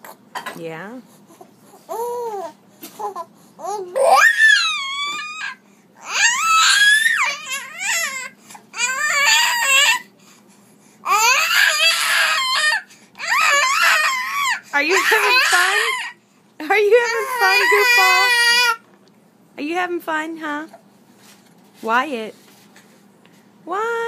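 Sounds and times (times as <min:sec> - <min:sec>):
baby screaming: 0:03.6 - 0:10.1, 0:11.0 - 0:16.2, 0:17.0 - 0:18.8.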